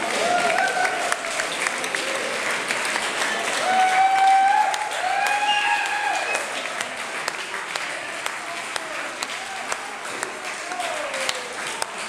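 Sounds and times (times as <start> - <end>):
people applauding: 0.0 - 12.0
long whoops of voices: 3.6 - 6.5.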